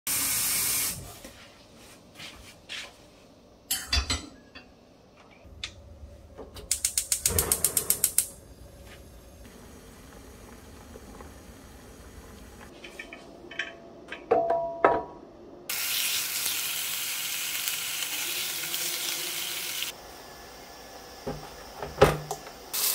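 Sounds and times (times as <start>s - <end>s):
gas burner and boiling hiss: 0.1s - 1.4s, 5.4s - 13.1s, 15.7s - 22.9s
gas igniter clicking rapidly: 6.7s - 8.4s.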